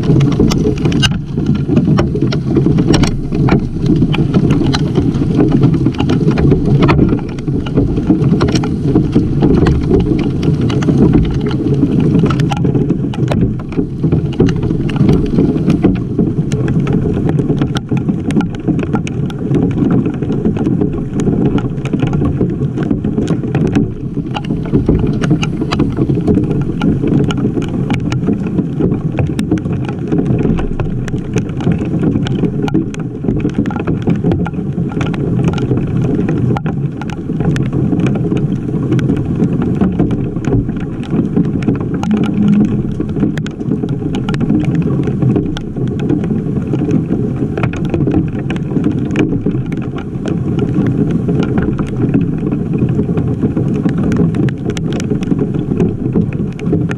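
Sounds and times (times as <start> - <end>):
hailstones ticking: 0.0 - 19.1
rain and hail rumbling: 0.0 - 56.9.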